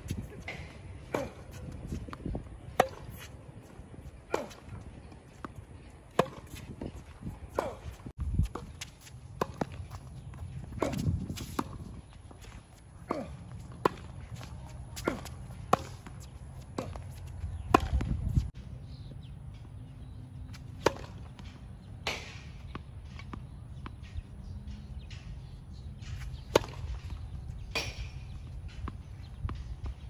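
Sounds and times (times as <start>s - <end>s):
tennis ball hit by racket: 2.7s - 3.3s, 6.1s - 6.6s, 15.0s - 18.2s, 20.8s - 21.3s, 26.3s - 29.6s.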